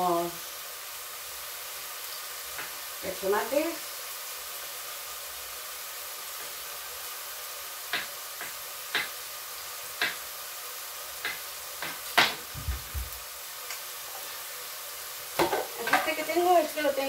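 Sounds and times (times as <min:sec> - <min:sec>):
food sizzling in a frying pan: 0:00.0 - 0:17.0
short low thud: 0:12.6 - 0:13.2
kitchen knocks and clicks: 0:15.4 - 0:16.1.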